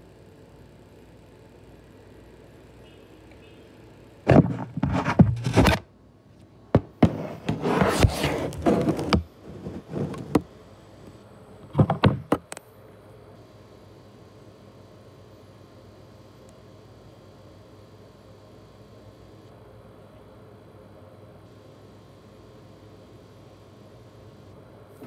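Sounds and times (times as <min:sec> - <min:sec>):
knocking and thumping: 0:04.3 - 0:05.8, 0:06.8 - 0:07.6, 0:11.8 - 0:12.4
scraping: 0:04.3 - 0:05.8.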